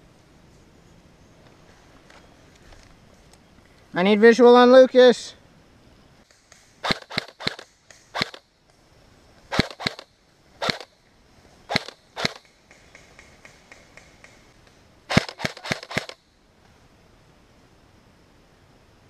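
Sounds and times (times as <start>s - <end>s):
airsoft rifle shots: 6.8s - 8.4s, 9.5s - 10.9s, 11.7s - 12.5s, 15.1s - 16.2s.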